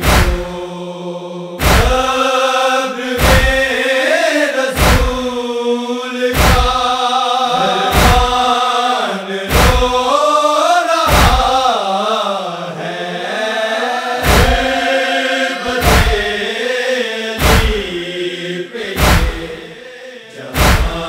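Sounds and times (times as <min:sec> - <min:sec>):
chest-beating thumps: 0:00.0 - 0:00.6, 0:01.6 - 0:02.2, 0:03.2 - 0:03.7, 0:04.8 - 0:05.3, 0:06.4 - 0:06.9, 0:07.9 - 0:08.5, 0:09.5 - 0:10.0, 0:11.1 - 0:11.6, 0:14.2 - 0:14.8, 0:15.7 - 0:16.4, 0:17.4 - 0:18.0, 0:19.0 - 0:19.8, 0:20.6 - 0:21.0
men chanting: 0:00.0 - 0:21.0.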